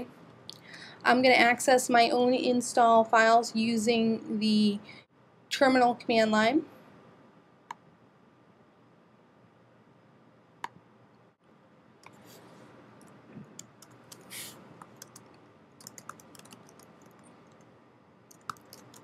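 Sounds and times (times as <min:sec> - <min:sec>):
computer keyboard typing: 0:13.6 - 0:17.7, 0:18.3 - 0:19.0.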